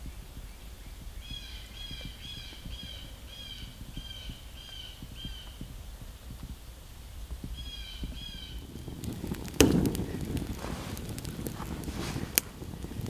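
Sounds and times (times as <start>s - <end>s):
bird calling harsh notes: 0.8s - 6.0s, 7.5s - 8.7s.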